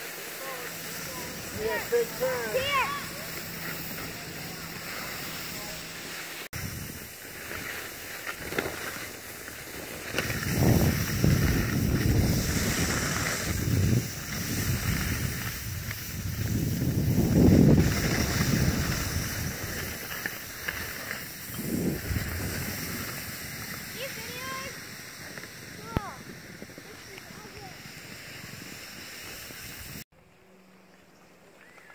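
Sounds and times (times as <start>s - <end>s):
skis sliding on snow: 0.0s - 30.1s
wind buffeting microphone: 10.1s - 30.0s.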